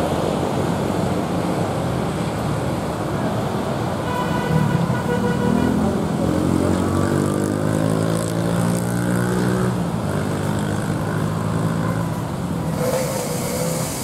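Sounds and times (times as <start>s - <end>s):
motorcycle and scooter engines: 0.0s - 14.0s
hiss: 12.7s - 14.0s.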